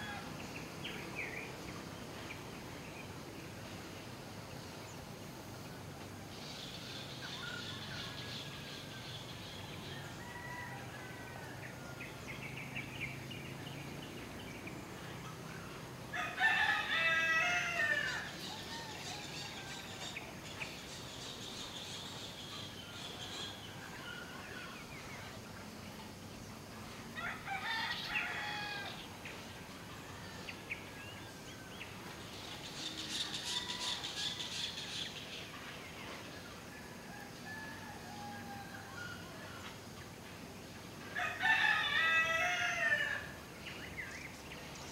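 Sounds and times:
rooster crowing: 9.9s - 11.8s, 16.1s - 20.0s, 27.2s - 29.0s, 37.0s - 39.3s, 41.2s - 43.4s.

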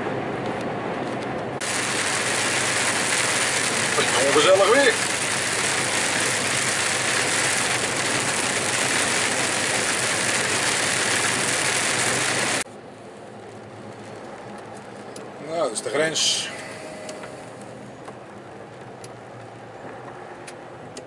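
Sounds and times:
lorry driving on wet road: 0.1s - 21.0s
heavy rain on windscreen: 1.6s - 12.7s.

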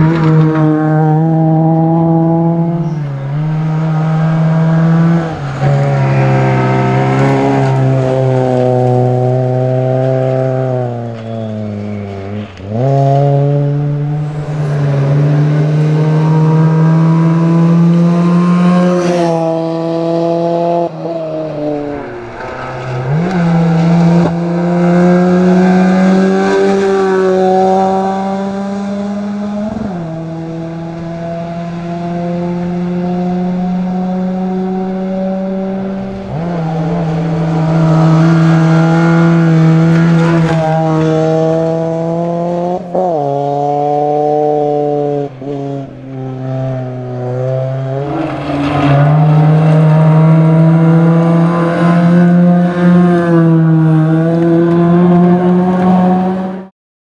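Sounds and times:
car engine revving hard: 0.0s - 11.0s, 12.6s - 21.9s, 22.5s - 56.7s.

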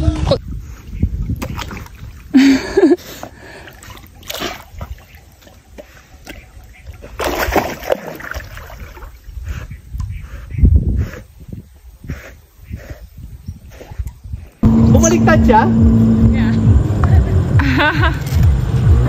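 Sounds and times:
dog splashing in water: 1.3s - 2.3s, 3.7s - 9.2s.

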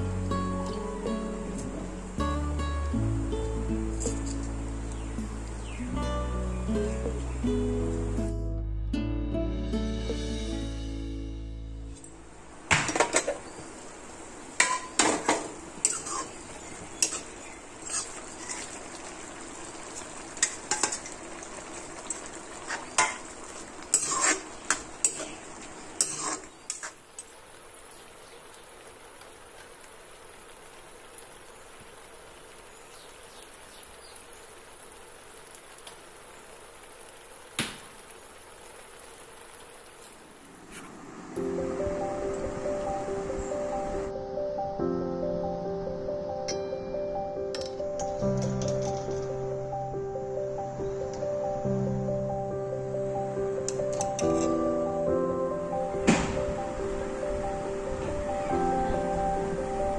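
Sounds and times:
curry sizzling: 0.0s - 8.5s, 9.5s - 44.1s.

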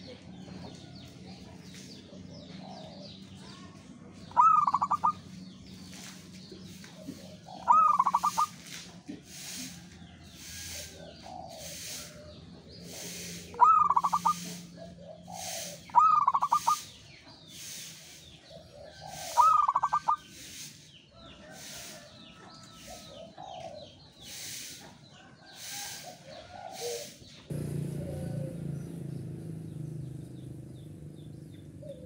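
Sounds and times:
dove cooing: 4.3s - 5.2s, 7.0s - 8.6s, 10.5s - 16.9s, 18.5s - 20.4s, 25.5s - 32.0s.

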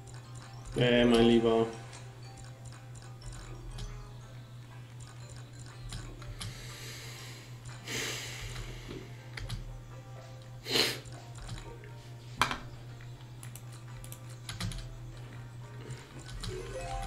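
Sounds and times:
slot game music and effects: 0.0s - 7.2s, 14.2s - 17.0s.

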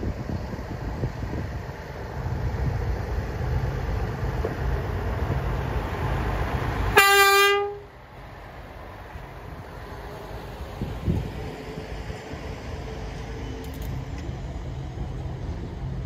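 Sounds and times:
truck rumbling along rails: 0.0s - 16.0s
truck horn blast: 6.9s - 7.9s.

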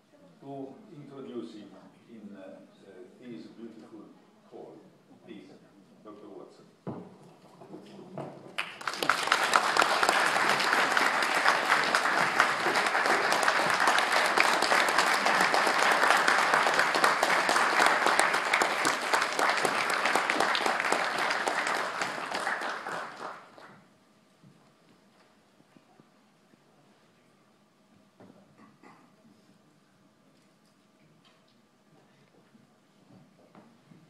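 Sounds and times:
audience applauding: 8.6s - 23.8s.

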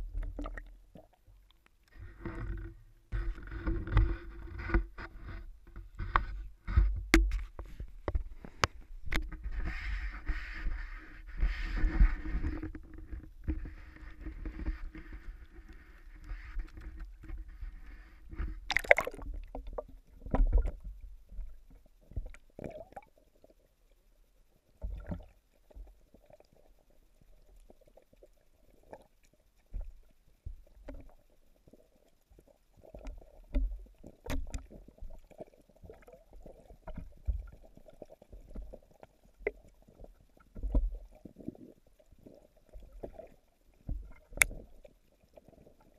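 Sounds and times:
dull underwater knocks and thumps: 0.0s - 23.1s, 24.8s - 26.0s, 29.7s - 31.3s, 32.3s - 45.9s
muffled underwater gurgling: 9.1s - 20.7s
camera splashing into water: 18.7s - 19.2s.

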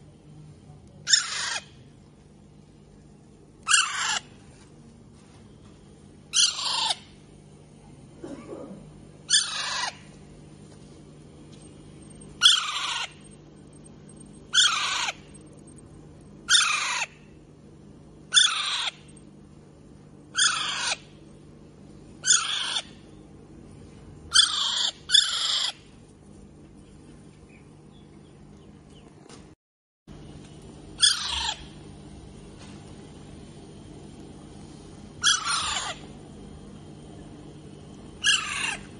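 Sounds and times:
parakeet calling: 1.1s - 1.8s, 3.6s - 4.3s, 6.3s - 7.1s, 9.3s - 10.1s, 12.0s - 17.3s, 18.3s - 19.1s, 20.3s - 21.2s, 22.2s - 23.0s, 24.3s - 25.8s, 31.0s - 31.8s, 35.2s - 36.1s, 38.2s - 38.9s.

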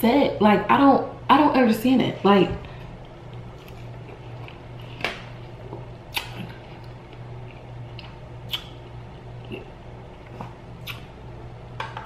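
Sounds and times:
wet chewing: 3.0s - 11.1s.

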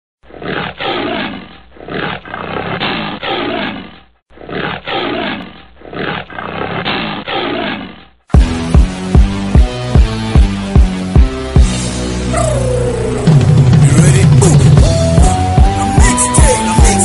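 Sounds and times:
big cat roaring: 0.3s - 8.2s, 12.3s - 13.8s
hip-hop beat with heavy bass: 14.3s - 17.0s.

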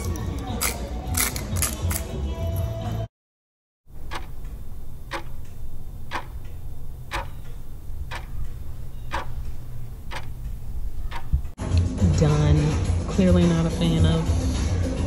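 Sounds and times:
clock ticking: 3.9s - 11.6s.

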